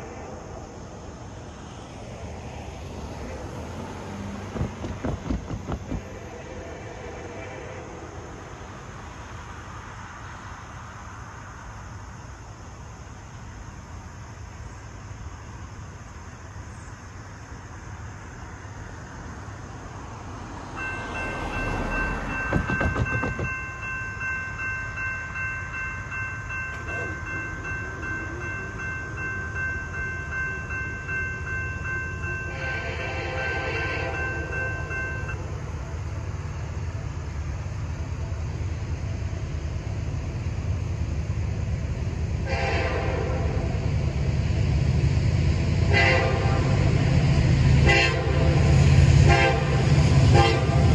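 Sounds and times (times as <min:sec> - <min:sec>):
train rumble: 0:00.0 - 0:50.9
train air horn blasts: 0:06.0 - 0:08.1, 0:32.5 - 0:34.6, 0:42.4 - 0:43.8, 0:45.8 - 0:46.9, 0:47.8 - 0:50.9
electronic crossing bell ringing: 0:20.8 - 0:32.8, 0:34.1 - 0:35.4.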